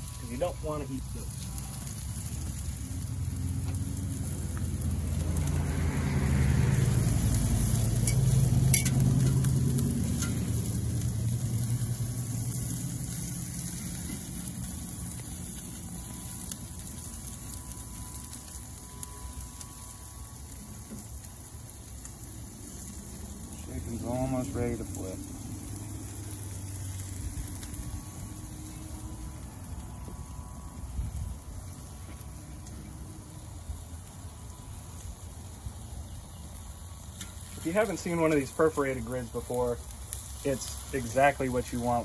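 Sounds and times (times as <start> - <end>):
food sizzling on a grill: 0.0 - 42.0
low rumble: 1.1 - 20.3, 22.4 - 33.4.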